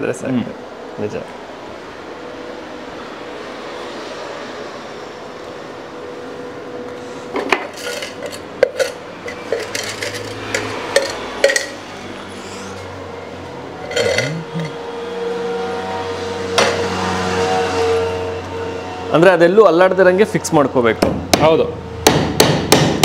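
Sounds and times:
steady low hum: 0:00.0 - 0:23.0
metal tools clinking: 0:07.7 - 0:11.8, 0:13.8 - 0:14.8.

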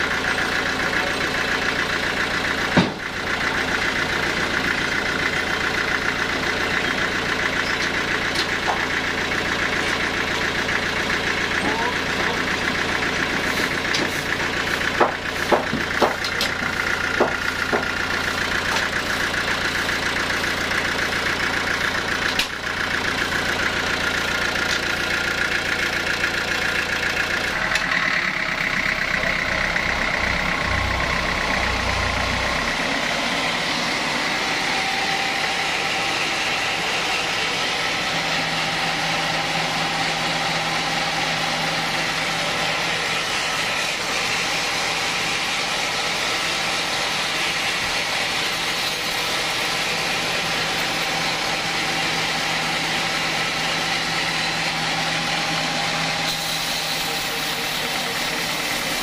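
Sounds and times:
band saw running: 0:00.0 - 0:59.0
sharp knocks: 0:15.0 - 0:16.6.

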